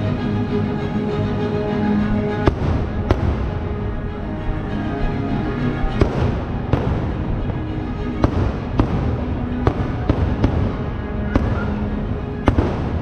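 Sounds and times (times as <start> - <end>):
music: 0.0 - 13.0
fireworks bangs: 2.4 - 4.0, 5.8 - 13.0.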